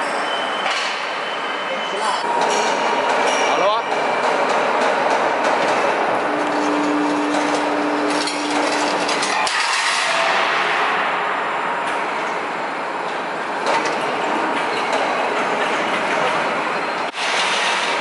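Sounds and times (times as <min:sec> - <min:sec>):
machine hum: 0:02.2 - 0:15.6
knocks and clanks: 0:02.4 - 0:10.9, 0:13.6 - 0:16.5.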